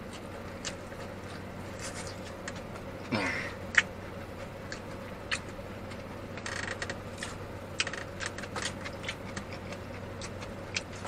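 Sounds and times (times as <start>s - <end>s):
person chewing: 0.0s - 11.0s
steady low hum: 0.0s - 11.0s.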